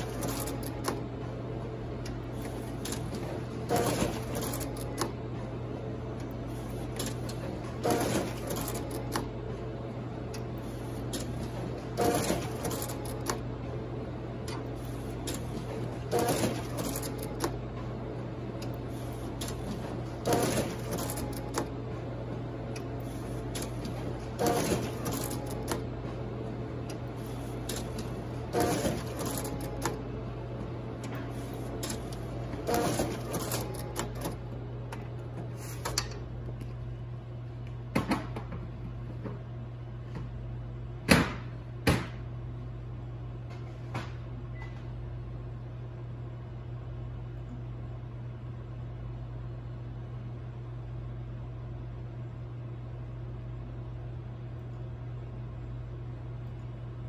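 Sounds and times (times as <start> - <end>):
printer sheet feeding rush: 0.0 - 9.8, 10.5 - 34.5
printer hum: 0.0 - 57.0.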